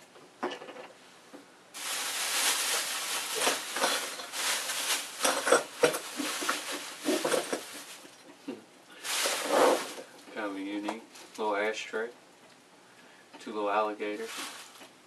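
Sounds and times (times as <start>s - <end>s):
plastic bag rustling: 1.7s - 8.3s, 9.0s - 11.6s, 13.7s - 15.0s.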